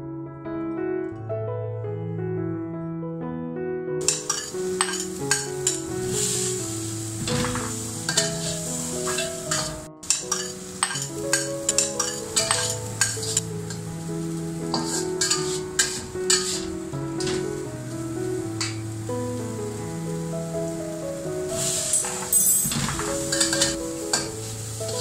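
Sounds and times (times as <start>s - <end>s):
light piano music: 0.0s - 25.0s
metal spatula scraping wok: 4.0s - 17.7s, 21.6s - 25.0s
food sizzling: 4.0s - 25.0s.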